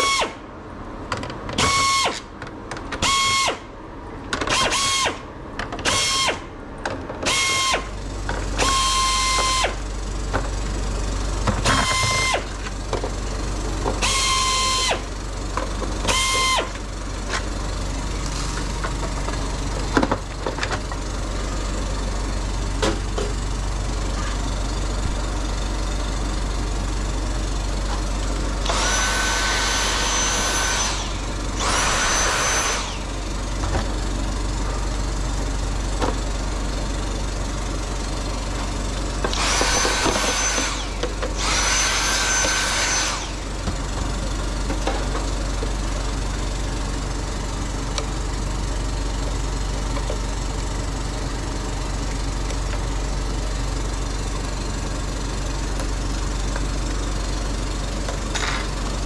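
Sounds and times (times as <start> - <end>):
steady low hum: 5.2 - 59.0
electric screwdriver whirring: 28.6 - 33.0, 39.3 - 43.4.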